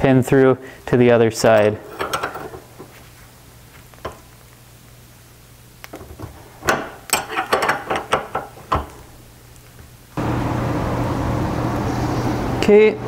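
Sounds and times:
wrench clinking on chain breaker: 1.5s - 2.6s.

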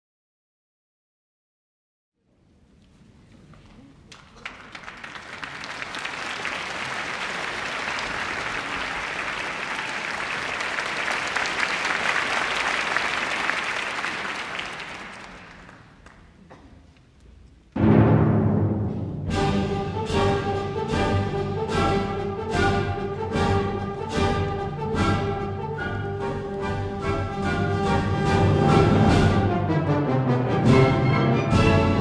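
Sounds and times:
audience applauding: 4.1s - 16.4s
orchestra playing: 17.8s - 32.0s
timpani: 17.8s - 32.0s.

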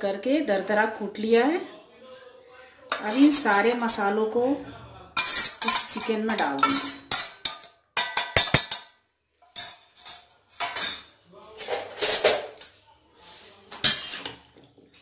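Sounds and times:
steel kitchenware clinking: 2.9s - 3.7s, 5.2s - 12.8s, 13.7s - 14.6s
spoon tapping steel bowl: 5.2s - 8.9s.

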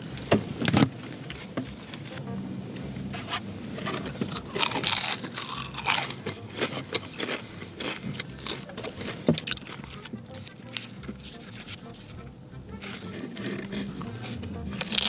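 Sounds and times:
crunchy chewing of fried food: 4.3s - 15.0s.

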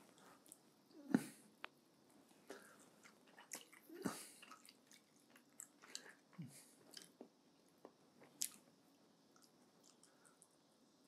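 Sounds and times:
wet chewing sounds: 2.5s - 8.6s, 9.3s - 10.6s.

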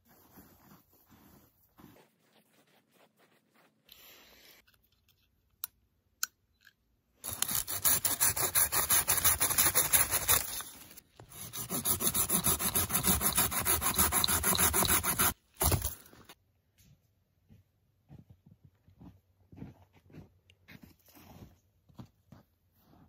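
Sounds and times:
pruning saw cutting branch: 11.4s - 16.0s.

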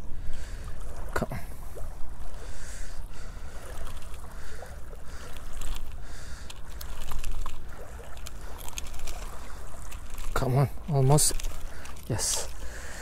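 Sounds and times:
small waves washing at shore: 0.0s - 13.0s
light clicks: 5.2s - 10.4s.

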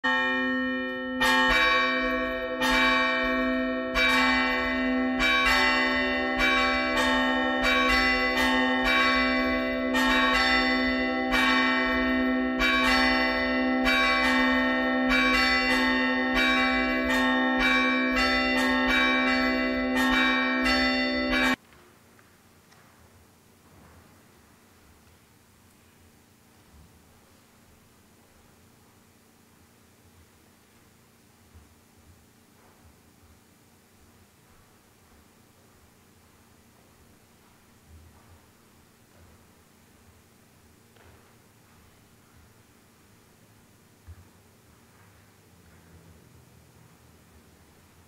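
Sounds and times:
church bells ringing: 0.0s - 21.6s.

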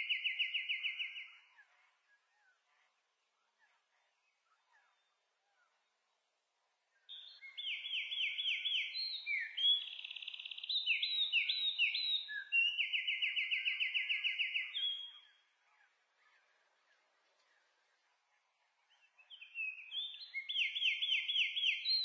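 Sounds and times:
songbird singing trills: 0.0s - 2.7s, 7.0s - 16.8s, 18.6s - 22.0s.

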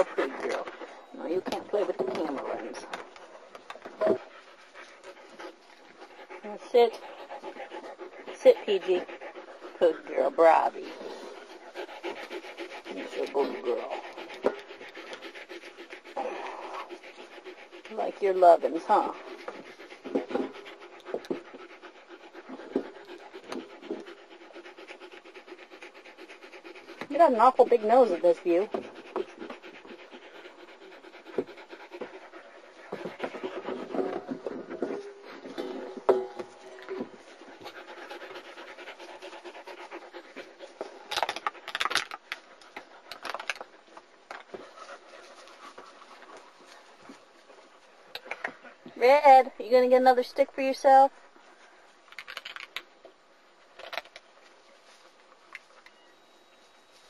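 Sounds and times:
puppy panting rapidly: 0.0s - 41.6s.

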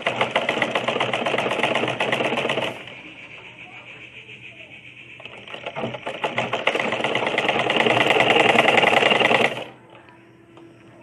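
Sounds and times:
sewing machine stitching: 0.0s - 3.0s, 5.2s - 9.7s.

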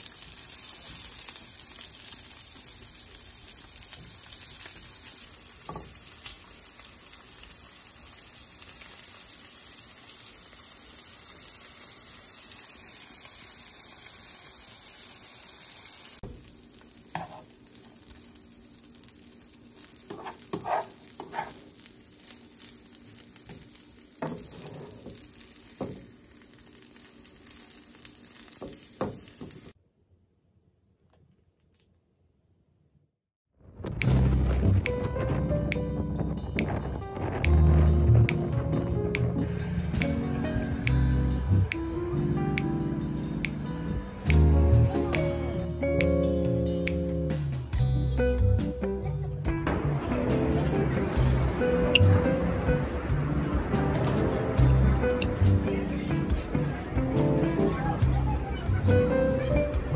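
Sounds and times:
food sizzling in a frying pan: 0.0s - 29.8s, 48.6s - 59.9s
rice frying: 0.0s - 29.8s, 49.6s - 59.9s
plastic spoon scraping a pan: 20.1s - 21.6s.

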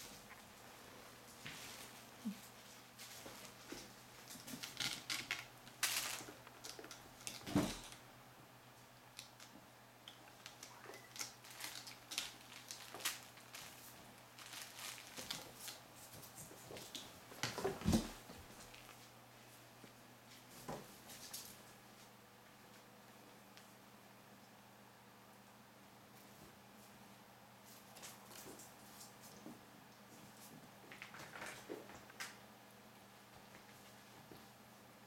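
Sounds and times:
kittens scratching and rustling: 0.0s - 8.0s, 10.2s - 19.1s, 27.6s - 32.4s.

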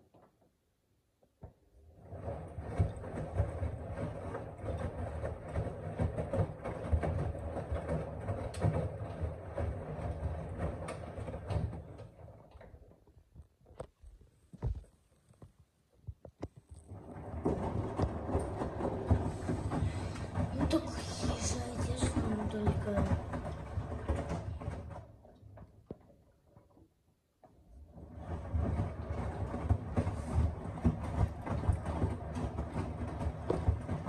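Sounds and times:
washing machine drum turning: 1.9s - 13.0s, 16.8s - 26.1s, 27.8s - 34.0s.

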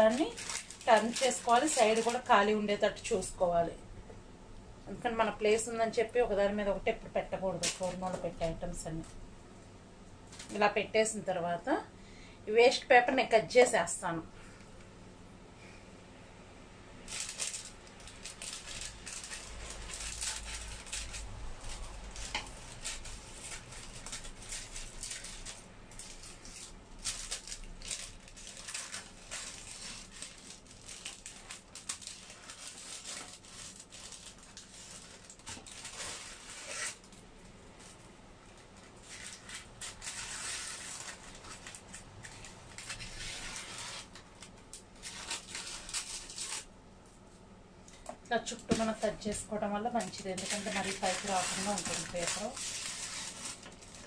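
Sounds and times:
paper crinkling: 0.0s - 3.3s, 17.1s - 46.7s, 47.9s - 54.0s.

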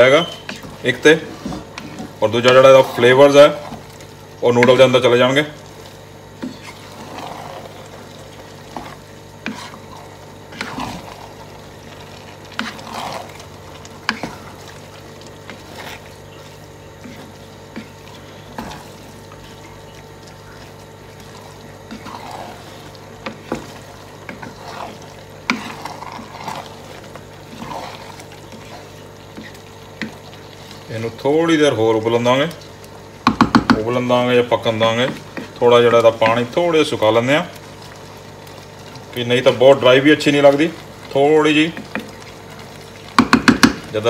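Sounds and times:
wet squelches: 0.0s - 31.4s
steady low hum: 0.0s - 43.2s
spatula scraping pot: 0.0s - 44.0s.

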